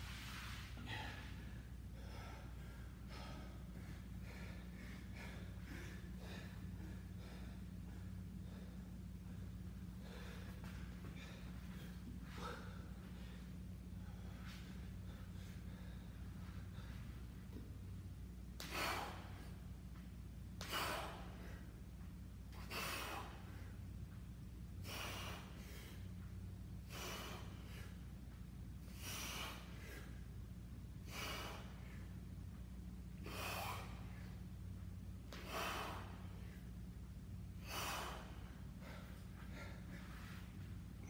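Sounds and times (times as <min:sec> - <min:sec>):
man breathing out hard: 0:22.5 - 0:23.8, 0:24.8 - 0:26.1, 0:26.8 - 0:28.0, 0:31.0 - 0:32.1, 0:33.2 - 0:34.3, 0:35.3 - 0:36.7, 0:37.6 - 0:40.6.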